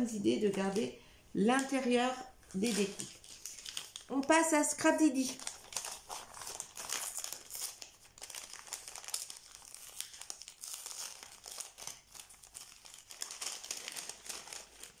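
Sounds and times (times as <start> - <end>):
wrapping crinkling and rustling: 0.0 - 15.0
wrapping tearing: 2.5 - 4.3, 5.1 - 15.0.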